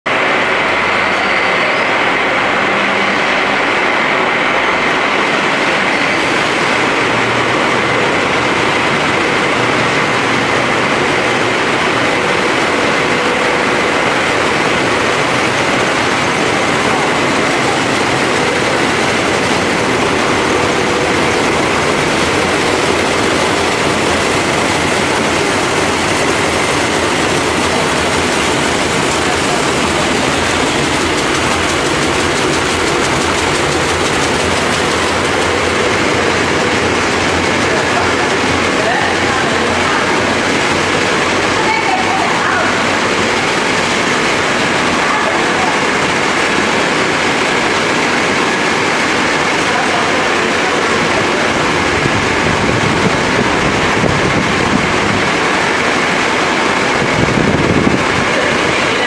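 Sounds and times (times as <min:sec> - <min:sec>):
processing machinery din: 0:00.1 - 0:59.0.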